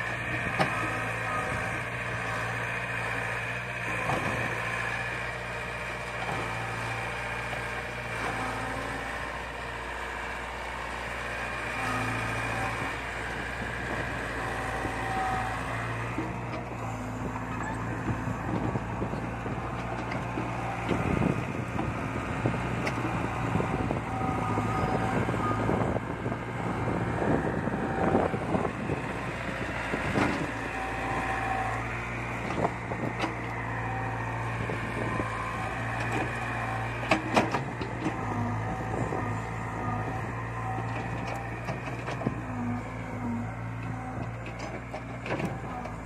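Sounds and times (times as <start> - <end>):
excavator diesel engine running: 0.0 - 46.0
hydraulic whines: 11.7 - 46.0.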